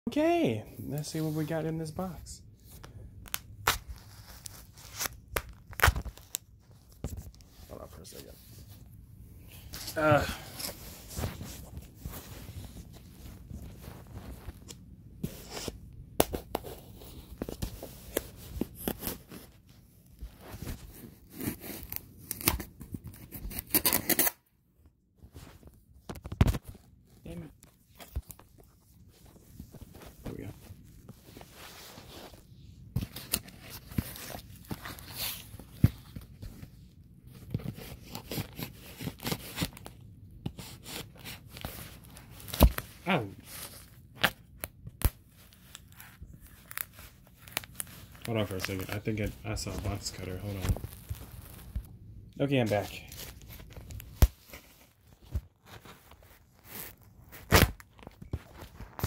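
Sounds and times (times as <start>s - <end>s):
wrapping tearing and crinkling: 3.2s - 8.2s, 37.4s - 51.9s, 52.6s - 59.0s.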